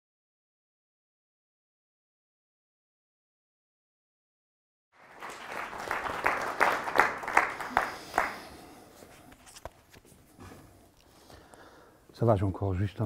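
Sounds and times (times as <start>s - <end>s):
loud individual claps: 5.0s - 8.6s
audience applause: 5.0s - 8.8s.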